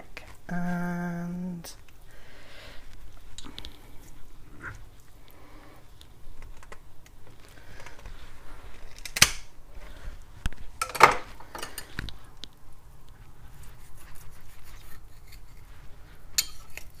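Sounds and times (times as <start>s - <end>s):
hands rubbing chicken carcass: 13.1s - 16.3s.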